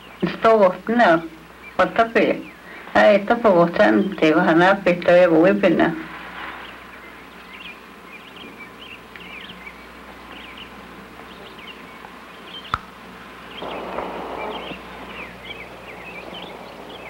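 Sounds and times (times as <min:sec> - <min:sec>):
background hiss: 0:00.0 - 0:17.0
small birds twittering: 0:00.0 - 0:17.0
rustling scrape: 0:06.0 - 0:06.9.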